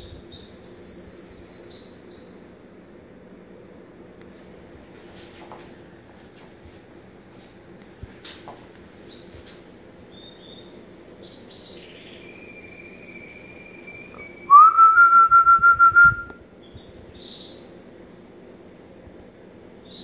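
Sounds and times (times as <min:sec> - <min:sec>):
rapid whistled peeps: 0:10.1 - 0:17.6.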